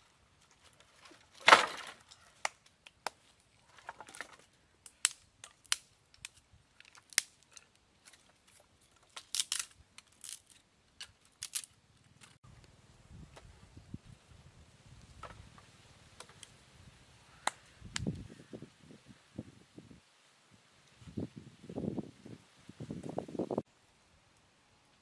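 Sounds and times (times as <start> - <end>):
firewood dropped with crash: 0.8 - 2.2
dry sticks clacking together: 3.8 - 12.4.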